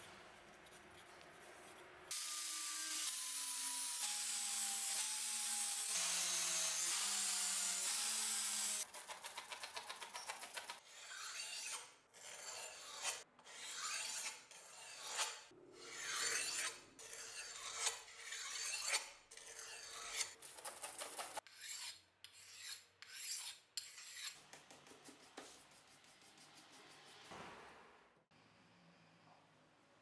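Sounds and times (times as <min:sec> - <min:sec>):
pad rasping on metal blade: 0:08.9 - 0:27.3.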